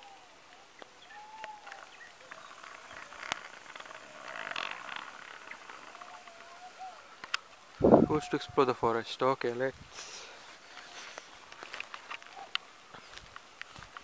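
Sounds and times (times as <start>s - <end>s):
faint animal calls: 0.0s - 8.8s
outdoor hiss: 4.8s - 14.0s.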